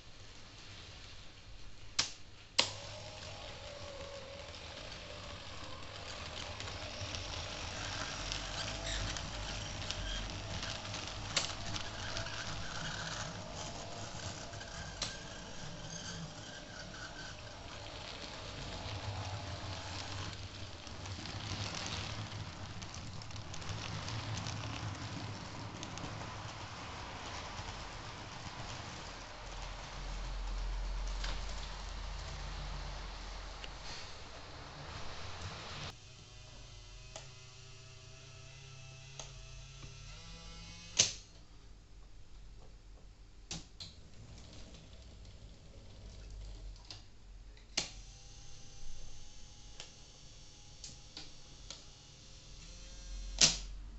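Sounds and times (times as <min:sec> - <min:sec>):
wheels clicking over rail joints: 0:02.6 - 0:36.0
model train motor hum: 0:02.6 - 0:41.0.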